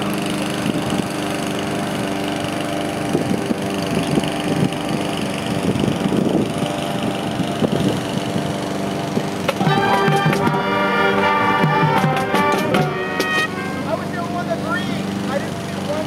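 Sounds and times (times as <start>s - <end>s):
lawn mower engines droning: 0.0s - 16.0s
wind gusting on microphone: 3.0s - 9.4s.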